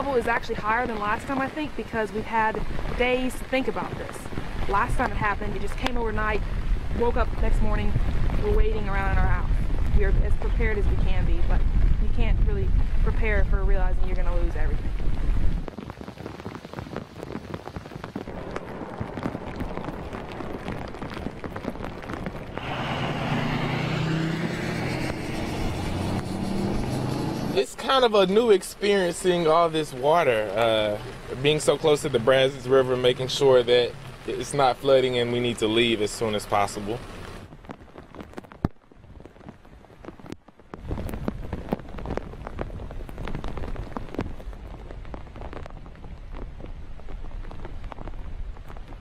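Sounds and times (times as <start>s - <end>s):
rain falling: 0.0s - 49.0s
tyres spraying water: 22.6s - 37.4s.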